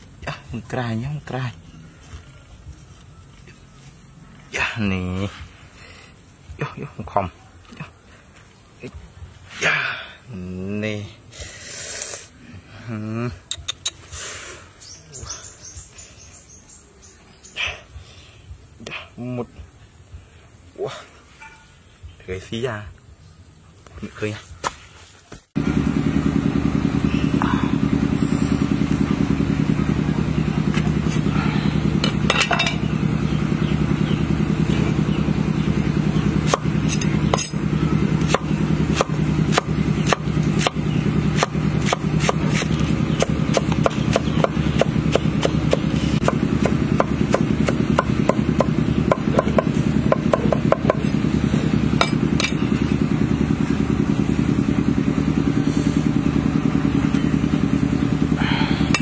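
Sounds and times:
low engine-like hum: 0.0 - 11.5, 12.2 - 21.1, 25.6 - 59.0
cleaver chopping on wooden board: 36.4 - 37.6, 38.2 - 51.2.

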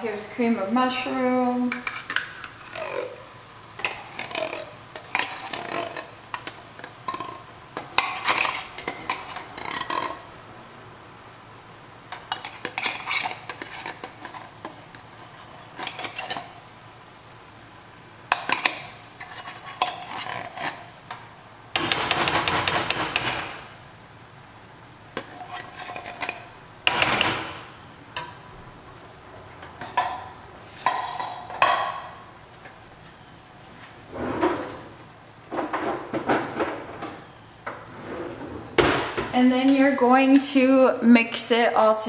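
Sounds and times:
fork scraping metal can and pan: 3.8 - 10.2.

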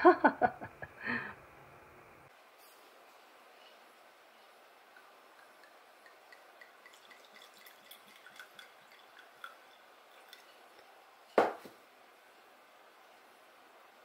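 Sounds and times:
liquid pouring into glass: 4.9 - 10.9
sharp knock: 11.4 - 11.8.

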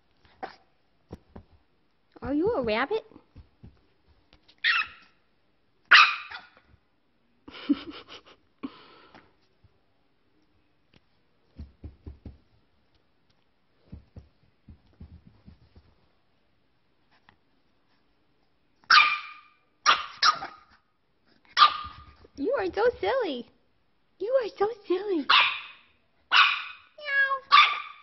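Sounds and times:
soft low thumps: 2.2 - 4.2, 11.5 - 12.6, 13.8 - 16.1
puppy barking high-pitched: 4.6 - 5.1, 5.9 - 6.6, 18.9 - 20.8, 21.6 - 22.1, 25.3 - 28.0
rustling: 10.8 - 18.8.

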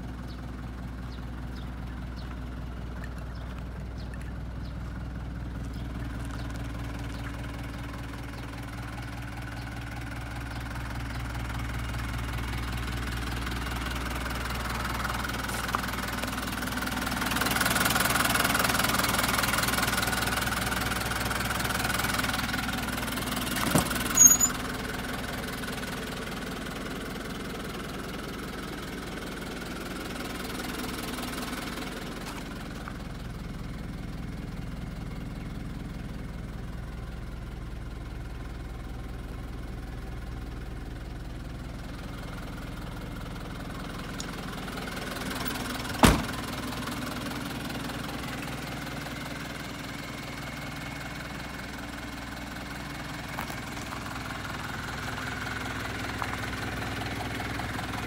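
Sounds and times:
diesel engine idling: 0.0 - 58.0
loud thump: 46.0 - 46.4.

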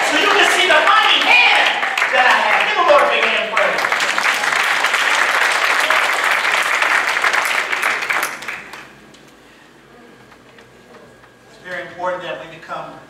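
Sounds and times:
congregation applauding: 0.0 - 9.2.

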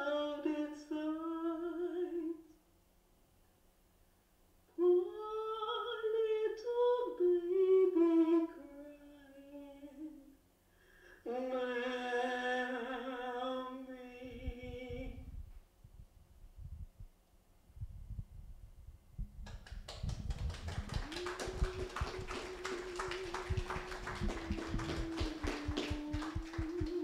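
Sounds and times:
woman singing unaccompanied: 0.0 - 2.4, 4.8 - 10.2, 11.3 - 15.3, 21.0 - 27.0
low pulsing thuds: 20.0 - 27.0.

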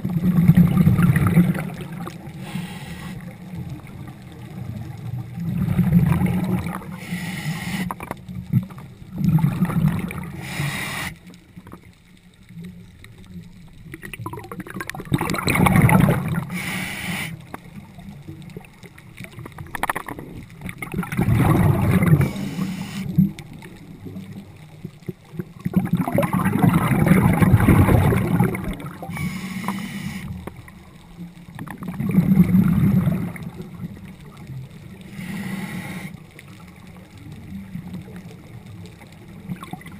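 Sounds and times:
bubbling underwater exhalations: 0.0 - 2.6, 5.4 - 7.0, 9.1 - 11.0, 13.9 - 16.7, 19.3 - 23.4, 25.3 - 30.2, 31.7 - 33.9
regulator inhalation hiss: 2.3 - 3.3, 6.9 - 8.0, 10.4 - 11.3, 16.5 - 17.5, 22.2 - 23.2, 29.0 - 30.4, 35.0 - 36.2.

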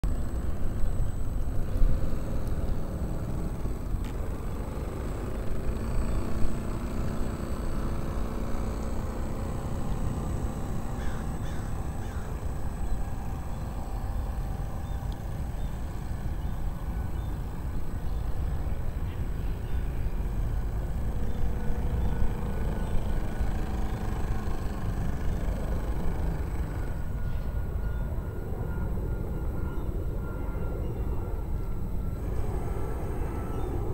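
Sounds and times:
bird calls: 10.8 - 17.4.

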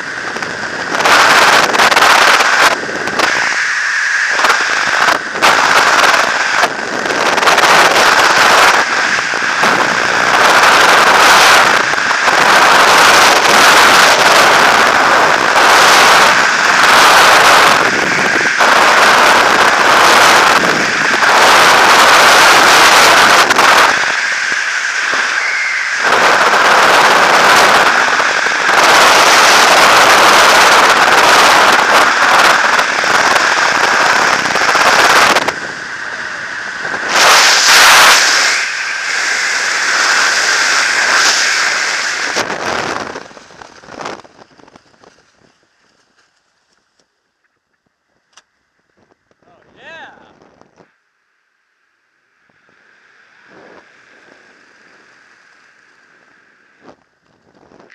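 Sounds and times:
wind buffeting microphone: 0.0 - 46.2.

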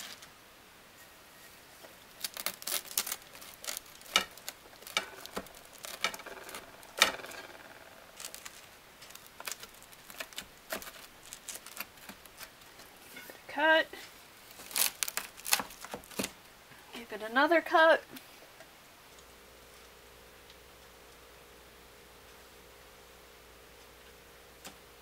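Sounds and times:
pizza crust crunching under blade: 2.1 - 12.9, 14.5 - 16.4.

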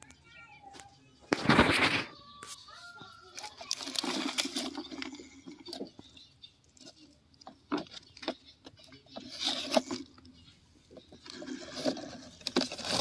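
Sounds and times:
toy truck scraping on gravel: 1.3 - 6.3, 8.0 - 13.0
toy truck clicking and tapping: 2.5 - 13.0.

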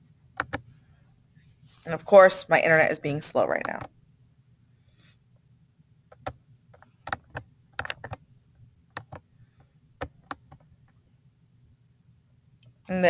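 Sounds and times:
computer mouse and key clicks: 0.4 - 0.7, 6.1 - 8.2, 8.9 - 9.3, 10.0 - 11.0.

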